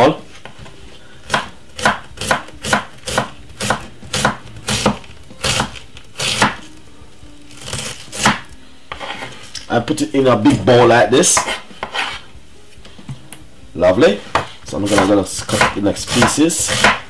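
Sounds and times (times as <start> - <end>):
knife chopping on wooden board: 1.3 - 6.6, 7.7 - 9.3, 10.8 - 12.2, 14.2 - 17.0.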